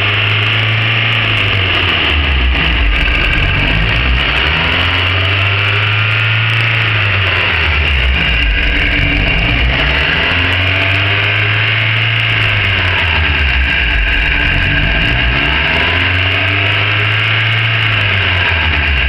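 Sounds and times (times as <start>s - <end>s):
car engine revs surging: 0.0s - 19.0s.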